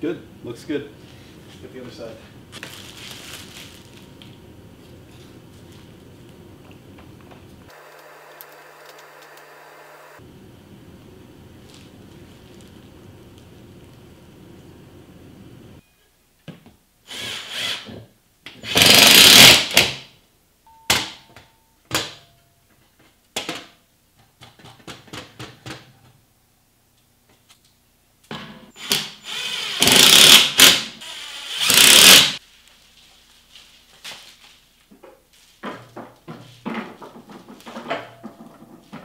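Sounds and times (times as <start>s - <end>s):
cordless drill driving screws: 17.1s - 17.9s, 18.6s - 19.8s, 28.8s - 32.4s.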